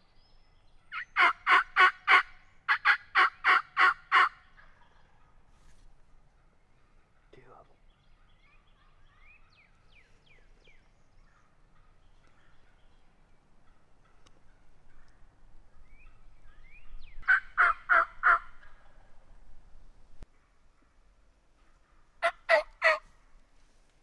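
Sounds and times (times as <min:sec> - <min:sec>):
songbirds chirping: 0:00.0 - 0:24.0
turkey gobbling: 0:00.9 - 0:05.5, 0:17.2 - 0:19.2, 0:21.6 - 0:23.1.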